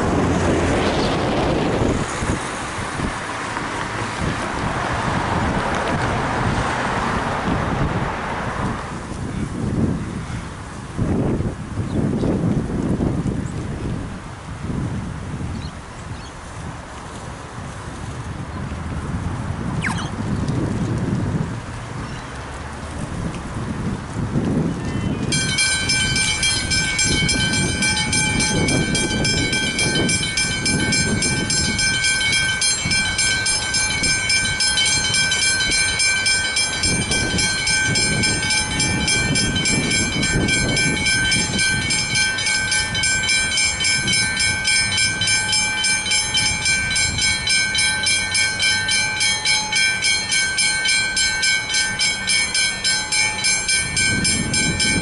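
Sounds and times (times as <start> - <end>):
level crossing bells ringing: 25.3 - 55.0.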